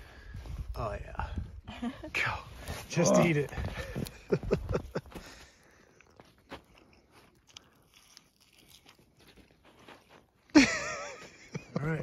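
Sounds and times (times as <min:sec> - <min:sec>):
person biting meat: 0:06.6 - 0:10.0.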